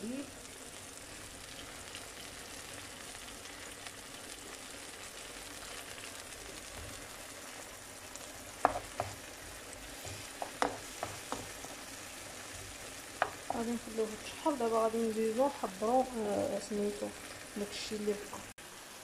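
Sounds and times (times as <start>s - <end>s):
peppers sizzling in a frying pan: 0.0s - 19.0s
wooden spoon knocking on pan: 8.6s - 9.3s, 10.0s - 11.8s, 13.1s - 13.6s.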